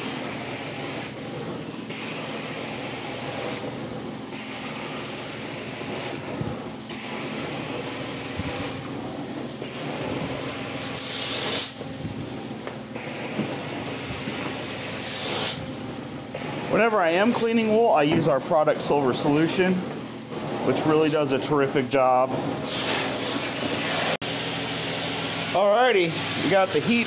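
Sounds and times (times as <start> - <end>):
carpet extractor vacuum drone: 0.0 - 27.0
suction hiss: 10.8 - 11.8, 15.0 - 15.7.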